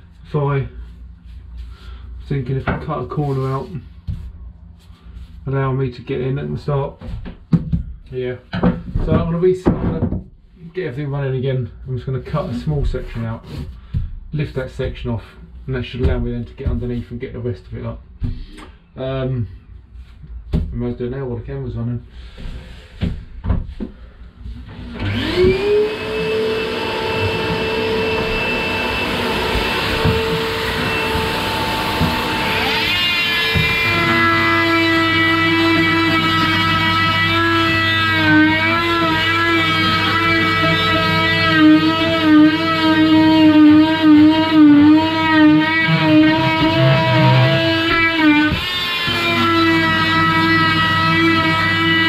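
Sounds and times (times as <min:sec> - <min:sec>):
vacuum motor whining: 0:24.8 - 0:52.0.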